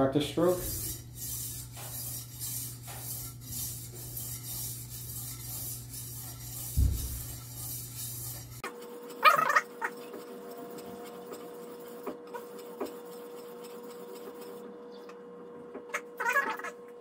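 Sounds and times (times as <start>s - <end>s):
water stone rasping on steel: 0.4s - 8.6s, 9.6s - 14.7s
dull thump: 6.7s - 7.4s.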